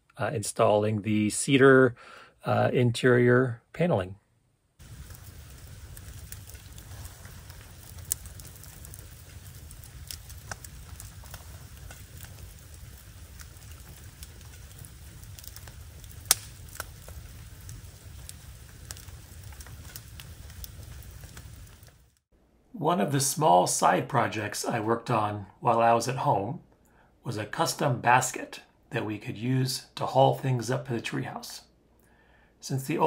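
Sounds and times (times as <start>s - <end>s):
low fire rush: 4.8s - 22.2s
wood fire crackling and popping: 4.8s - 22.3s.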